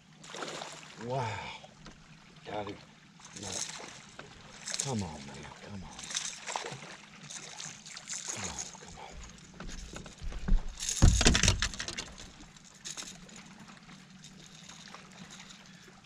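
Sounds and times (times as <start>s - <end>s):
fish splashing and thumping: 6.0s - 15.6s
faint clicks and rattles: 8.6s - 13.4s.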